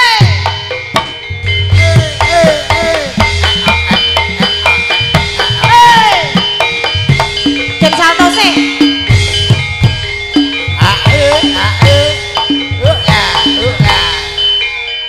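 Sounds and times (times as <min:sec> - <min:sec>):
gongs and metallophones ringing: 0:00.0 - 0:15.0.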